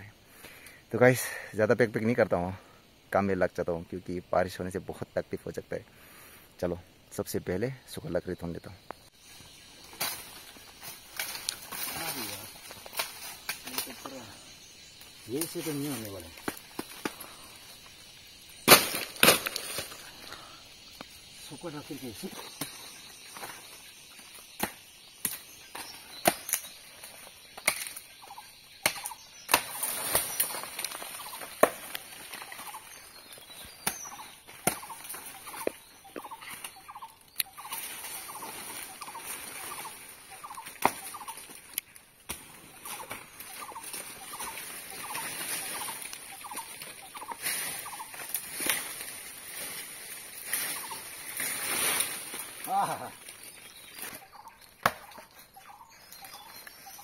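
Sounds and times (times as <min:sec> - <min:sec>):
machete chopping wood: 0:18.7 - 0:19.6, 0:28.8 - 0:30.3, 0:31.5 - 0:32.0, 0:54.8 - 0:55.3
branch dragged through undergrowth: 0:37.6 - 0:41.7, 0:42.4 - 0:54.6.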